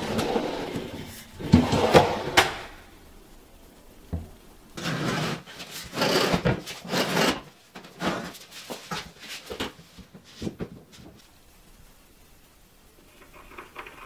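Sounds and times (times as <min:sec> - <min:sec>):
scraping and rubbing on wood: 0:04.8 - 0:11.2.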